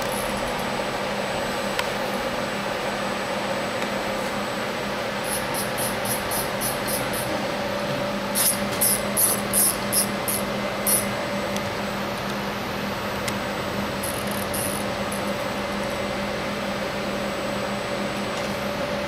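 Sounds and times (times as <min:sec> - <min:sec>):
steady machine hum: 0:00.0 - 0:19.0
short high-pitched motor whines: 0:08.3 - 0:11.1, 0:14.0 - 0:15.2.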